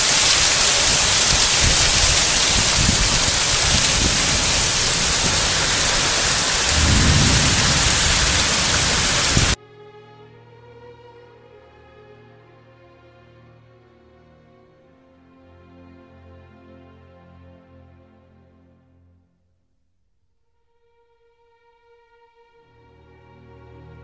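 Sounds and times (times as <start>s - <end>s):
torrential rain pouring: 0.0s - 9.6s
low rumble: 2.5s - 9.6s
quiet string music: 9.6s - 19.2s, 20.6s - 24.0s.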